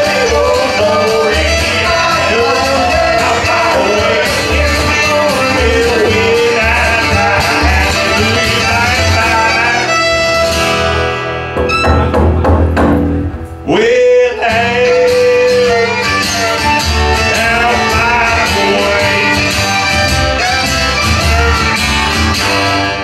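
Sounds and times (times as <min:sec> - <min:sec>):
person singing: 0:00.0 - 0:10.0, 0:13.6 - 0:20.6
fiddle: 0:00.0 - 0:12.0, 0:14.5 - 0:23.0
acoustic guitar: 0:00.0 - 0:23.0
upright bass: 0:00.0 - 0:23.0.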